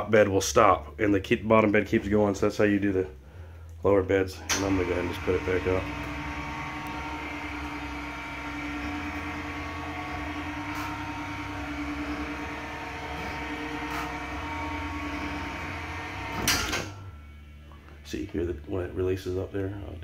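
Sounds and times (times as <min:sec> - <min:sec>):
electric motor humming: 0:04.4 - 0:17.5.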